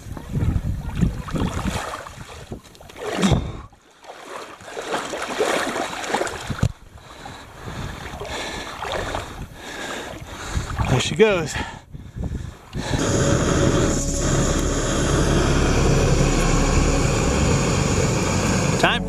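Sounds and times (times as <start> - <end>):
wind on microphone: 0.0 - 3.7, 10.2 - 10.9, 11.6 - 19.0
water sloshing: 0.4 - 6.7.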